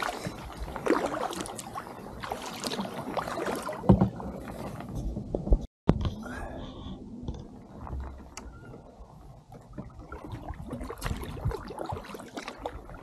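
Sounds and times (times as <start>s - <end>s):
paddle splashing in water: 0.0s - 5.5s, 7.5s - 13.0s.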